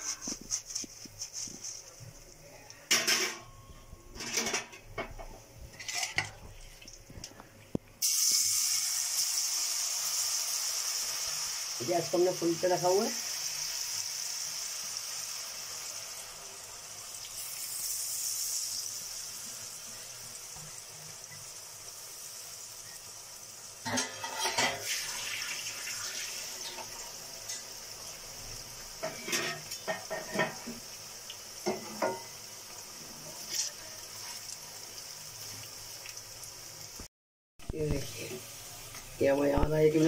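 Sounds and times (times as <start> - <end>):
potatoes sizzling in hot oil: 8.0 - 37.1, 37.7 - 40.0
spatula knocking and scraping pan: 23.9 - 24.8, 29.0 - 30.8, 31.6 - 32.3.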